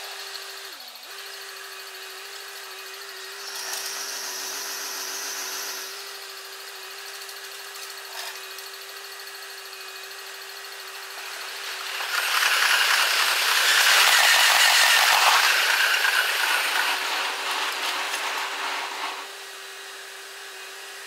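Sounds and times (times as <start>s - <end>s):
sped-up train rattling clatter: 11.0s - 18.3s.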